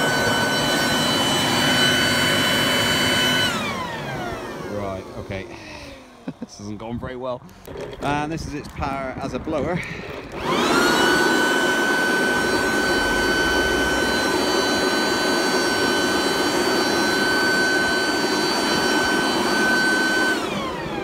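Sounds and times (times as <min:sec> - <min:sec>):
leaf blower motor whine: 0:00.0 - 0:21.0
rush of air: 0:09.4 - 0:17.4.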